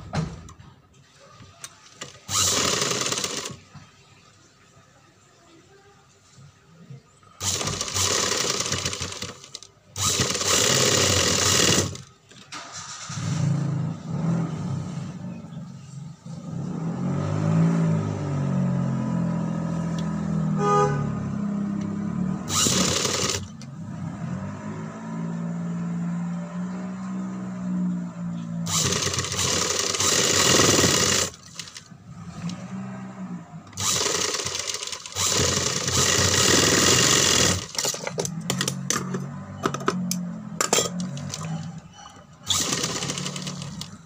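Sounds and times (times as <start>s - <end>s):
industrial sewing machine stitching: 1.7s - 3.6s, 7.4s - 13.1s, 22.4s - 23.6s, 28.7s - 32.7s, 33.8s - 38.8s, 40.7s - 44.0s.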